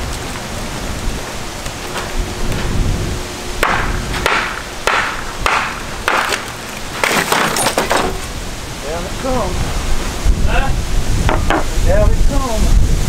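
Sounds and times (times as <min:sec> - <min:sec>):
wind rumble on microphone: 0:00.0 - 0:06.1, 0:08.0 - 0:13.0
hammer striking stone: 0:03.6 - 0:08.1.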